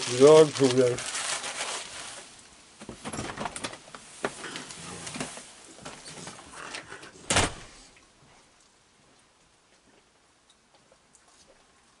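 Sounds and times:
loud rustle: 0.0s - 2.4s.

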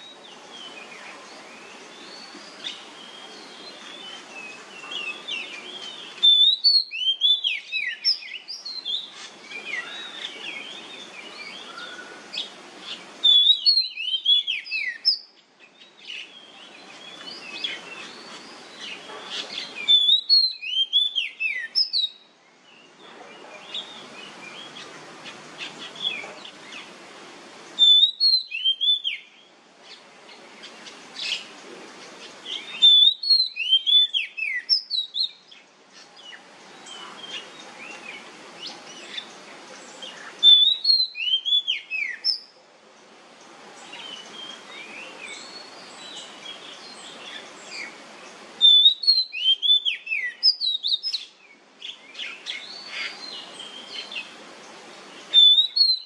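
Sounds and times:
bird singing whistled notes: 0.0s - 24.9s, 27.8s - 30.0s, 32.4s - 35.6s, 40.0s - 42.6s, 48.6s - 54.4s, 55.1s - 56.0s
faint hiss: 0.0s - 56.0s.

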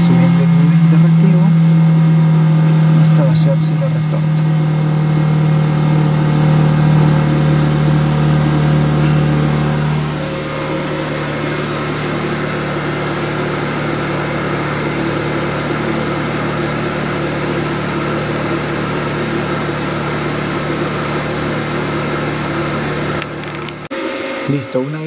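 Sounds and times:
pump humming with hiss: 0.0s - 25.0s.

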